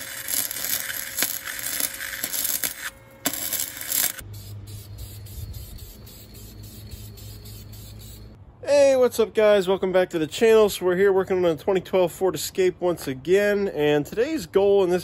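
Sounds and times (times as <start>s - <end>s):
welder arc crackling: 0.0s - 8.4s.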